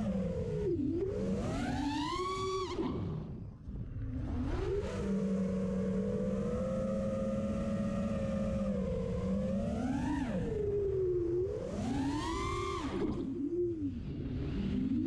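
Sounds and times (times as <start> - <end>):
drone motors whining: 3.7 - 15.0.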